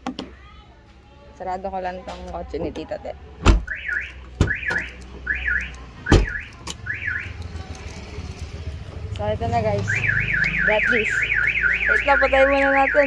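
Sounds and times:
car alarm chirping: 3.6 - 7.4, 9.8 - 13.0.

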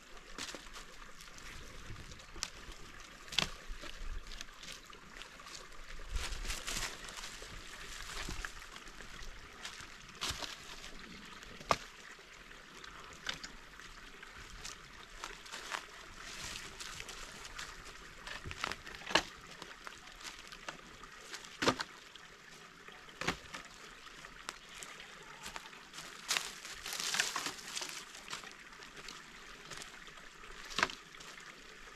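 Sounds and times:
footsteps crunching through dry leaves: 2.2 - 11.1, 14.5 - 19.0, 25.2 - 28.5.

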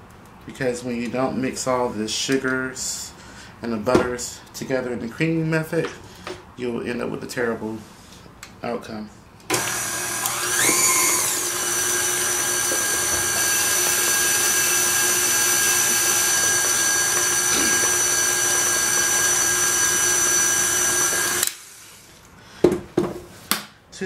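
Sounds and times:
stand mixer running: 9.5 - 21.4.

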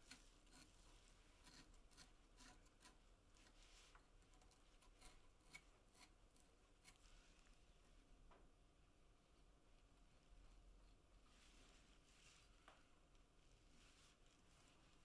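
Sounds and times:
light scrapes and small ticks: 0.0 - 7.7.

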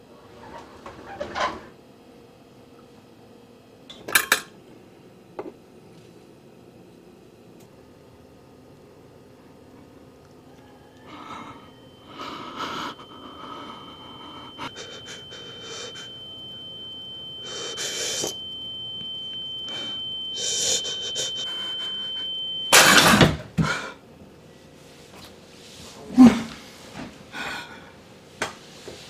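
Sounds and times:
high-pitched ringing tone: 10.4 - 24.0
man breathing: 11.0 - 16.2, 17.4 - 18.3, 19.7 - 22.0, 27.3 - 28.0.

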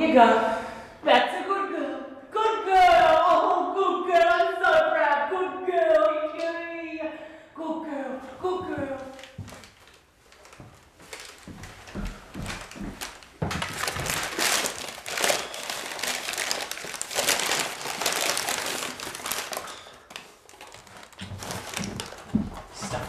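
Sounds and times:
paper bag crinkling and rustling: 9.1 - 23.0.

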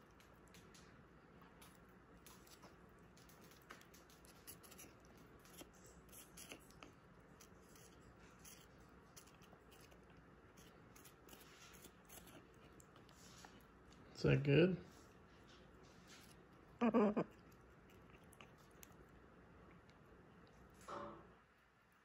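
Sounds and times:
parrot beak clicking while chewing: 0.0 - 13.0.

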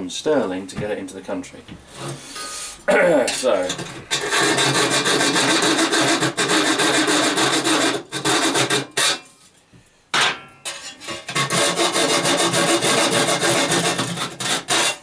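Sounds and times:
hacksaw cutting metal: 3.4 - 9.3, 10.6 - 15.0.

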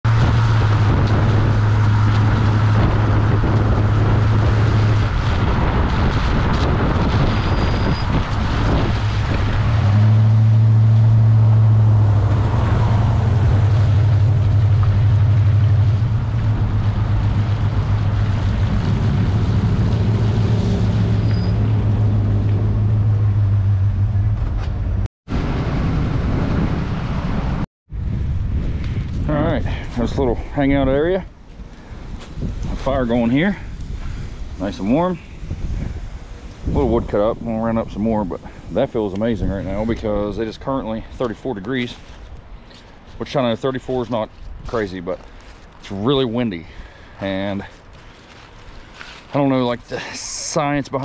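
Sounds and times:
tyres and engine drone: 0.0 - 51.0
wind rushing over camera: 0.1 - 9.9, 24.3 - 49.9.

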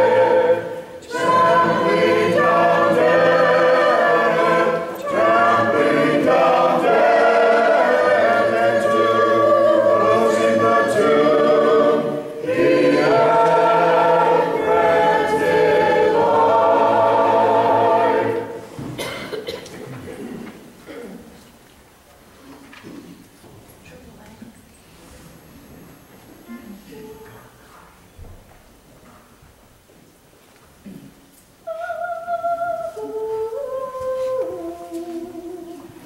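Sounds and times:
choir singing unaccompanied chant: 0.0 - 18.7, 31.7 - 36.0.

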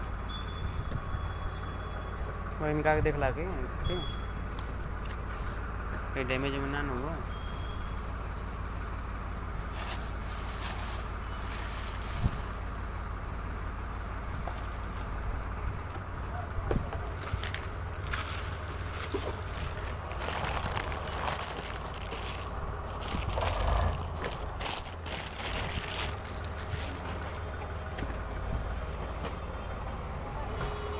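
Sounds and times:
paper and cardboard rustling: 16.9 - 27.5.

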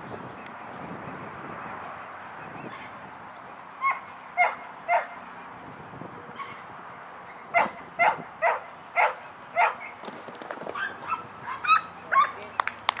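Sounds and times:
dog barking: 3.8 - 5.2, 7.5 - 9.9, 10.8 - 12.4
dog yipping: 3.8 - 5.2, 7.6 - 10.0, 10.8 - 12.4.

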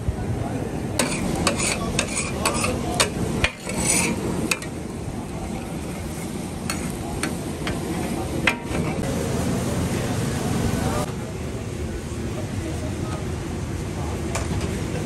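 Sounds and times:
metal spatulas clanking on iron: 1.0 - 4.7, 6.7 - 7.8, 8.4 - 9.0.

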